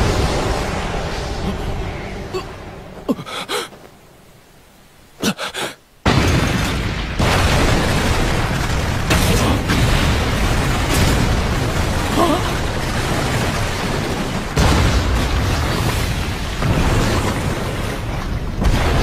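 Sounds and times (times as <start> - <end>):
loud rumbling blast: 0.0 - 3.0
low rumble: 0.0 - 3.2.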